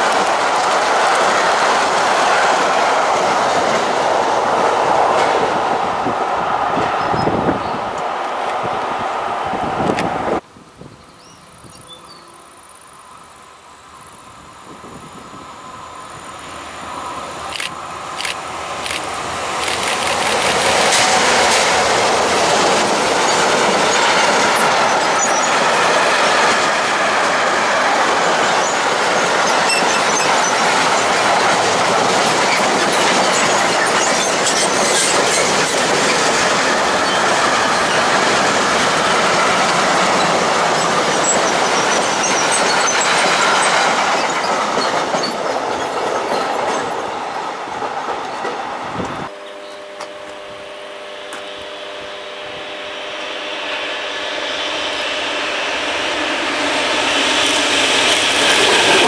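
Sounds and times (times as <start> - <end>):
freight train passing: 0.0 - 59.0
wheels clicking over rail joints: 26.5 - 47.1.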